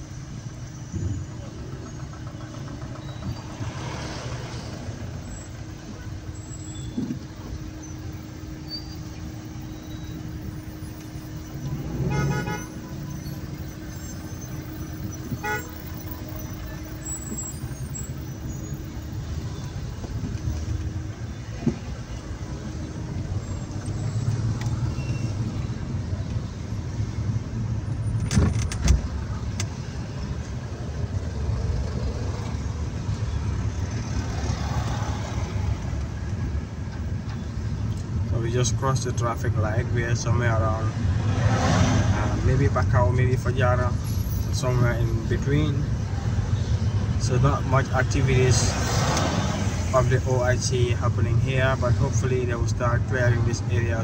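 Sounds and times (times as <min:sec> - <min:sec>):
engine and road noise: 0:00.0 - 0:54.0
car horn: 0:11.6 - 0:13.6, 0:15.2 - 0:17.0.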